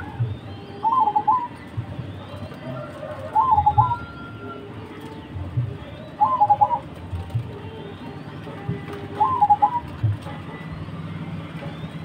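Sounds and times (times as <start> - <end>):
dove cooing: 0.0 - 5.1, 5.9 - 7.3, 8.8 - 10.4.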